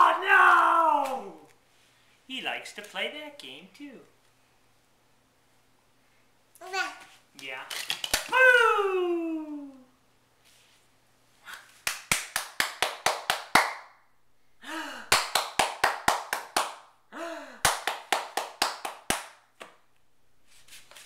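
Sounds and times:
hands clapping quickly: 7.9 - 8.3, 11.5 - 14.0, 15.1 - 16.9, 17.6 - 19.8.

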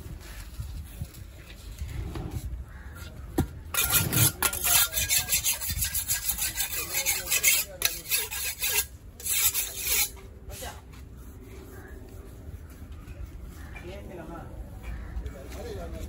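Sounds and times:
knife rasping on sharpening stone: 3.8 - 10.2.

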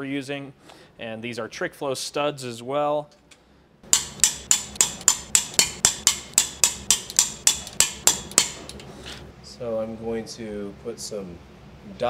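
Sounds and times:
ratchet wrench clicking: 3.9 - 8.9.

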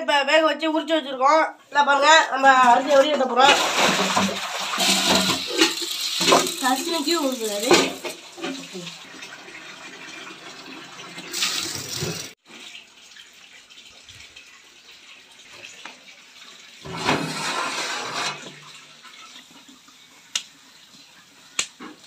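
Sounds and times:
water sloshing: 2.6 - 6.6.

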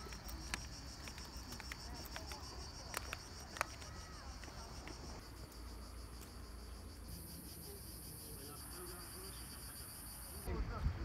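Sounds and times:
footsteps on concrete steps: 0.0 - 6.3
insects chirping: 0.0 - 10.5
higher insect drone: 3.9 - 10.5.

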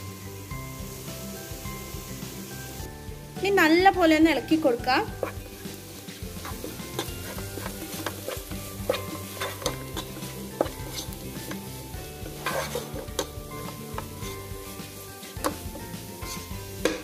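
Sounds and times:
onions sizzling: 0.0 - 17.0
spatula scraping a frying pan: 5.1 - 17.0.

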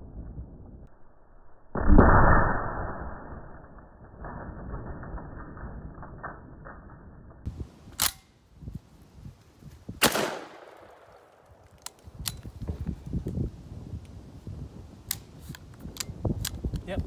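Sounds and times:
metallic clicks of gun action: 7.9 - 8.3, 15.1 - 16.9
shotgun shots with echo: 10.0 - 11.3.

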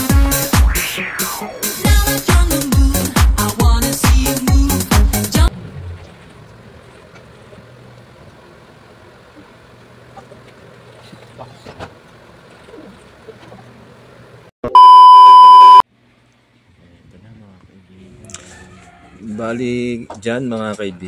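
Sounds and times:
high electronic beep: 14.7 - 15.8.

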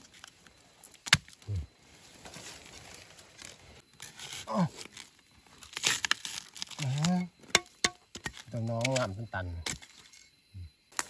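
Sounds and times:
dry leaves rustling and crackling: 1.9 - 7.1.

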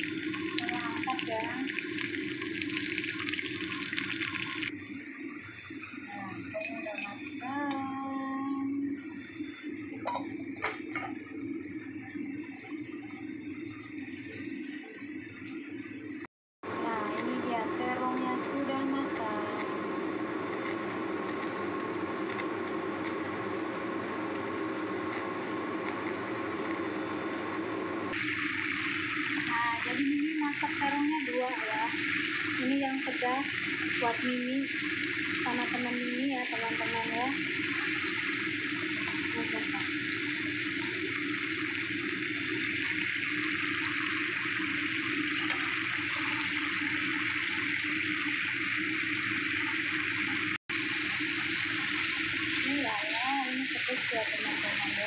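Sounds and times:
sauce sizzling and bubbling: 0.0 - 6.0, 19.6 - 55.0.

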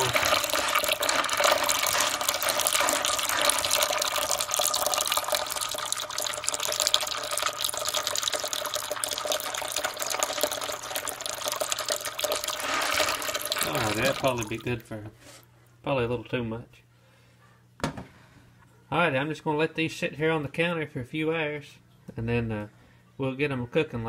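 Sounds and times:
tap water running into bowl: 0.0 - 14.8.

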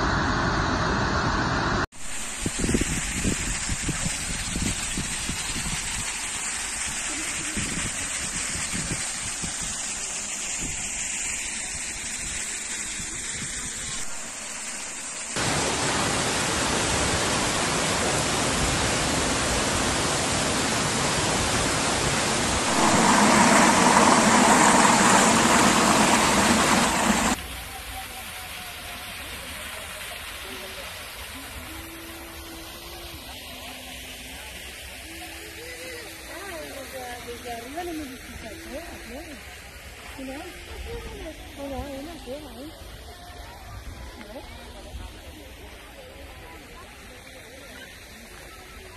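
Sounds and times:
waterfall rushing: 13.8 - 37.0.

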